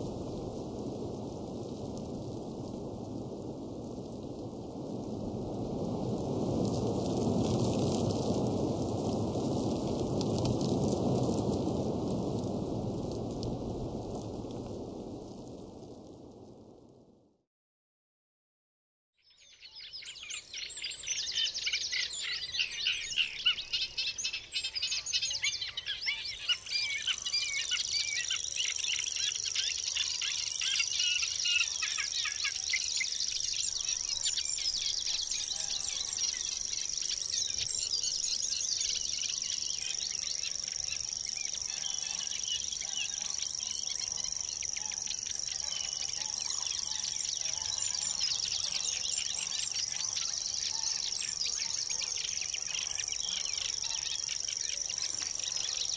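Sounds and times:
birds chirping and singing: 19.4s - 55.9s
crickets trilling: 26.5s - 55.9s.

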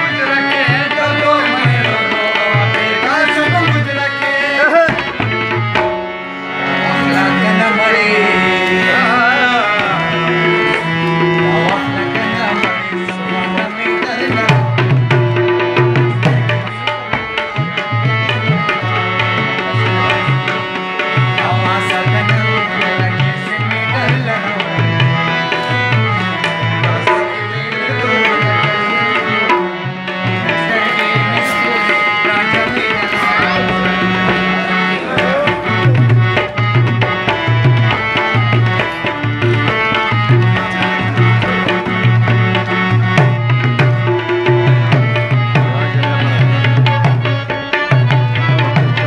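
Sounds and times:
harmonium melody: 0.0s - 49.0s
steady drum beat: 9.8s - 24.3s, 28.1s - 49.0s.

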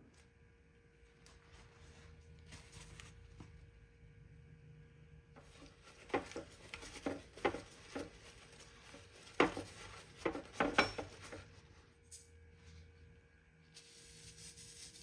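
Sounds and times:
paper towel patting and crinkling: 1.0s - 3.7s, 5.4s - 11.7s.

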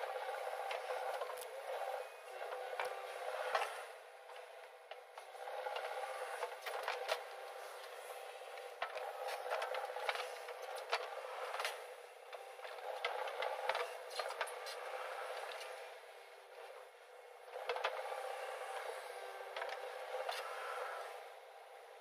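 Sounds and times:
diesel engine under load: 0.0s - 22.0s.

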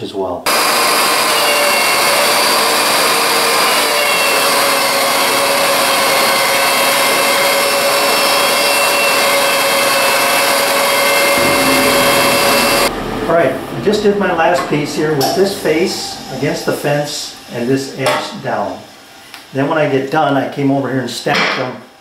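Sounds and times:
wood pieces being planed: 0.5s - 12.9s
thickness planer whining: 0.5s - 19.6s.

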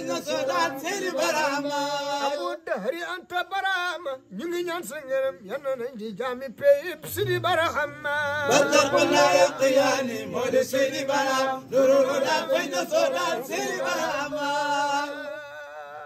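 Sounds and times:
men chanting together: 0.0s - 2.7s, 7.5s - 16.0s.

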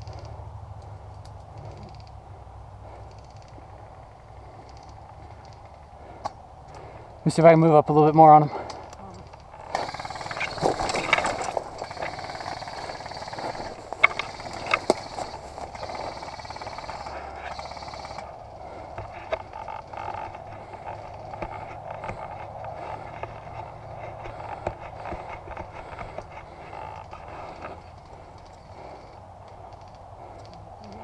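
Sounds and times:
sharp clicks: 4.6s - 6.8s
dry grass rustling underfoot: 9.3s - 18.2s.

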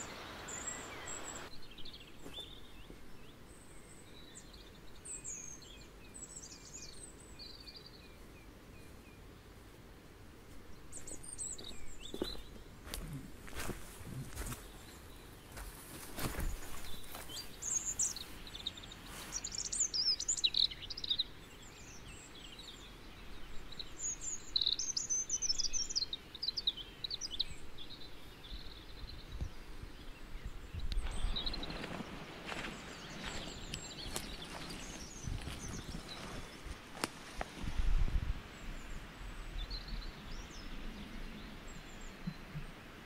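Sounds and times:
songbird warbling: 0.0s - 2.8s
rustling: 31.0s - 37.9s.

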